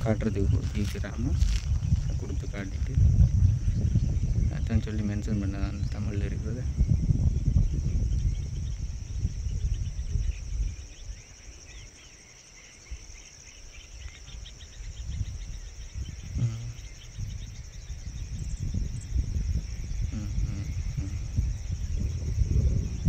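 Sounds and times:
low rumble: 0.0s - 11.2s, 15.2s - 23.0s
insects chirring: 0.0s - 23.0s.

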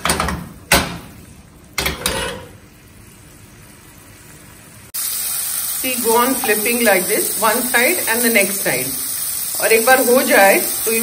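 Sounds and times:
oil sizzling: 0.2s - 11.0s.

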